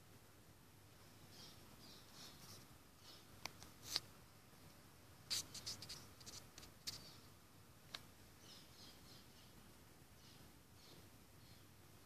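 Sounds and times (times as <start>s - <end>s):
small sharp clicks: 3.4s - 4.1s, 7.9s - 8.1s
faint high chirps: 8.3s - 11.8s.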